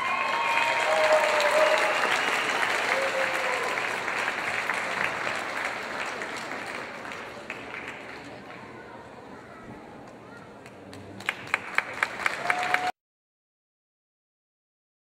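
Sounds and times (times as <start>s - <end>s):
cheers: 0.0s - 5.0s, 12.2s - 13.0s
audience clapping: 0.0s - 8.7s, 10.6s - 13.0s.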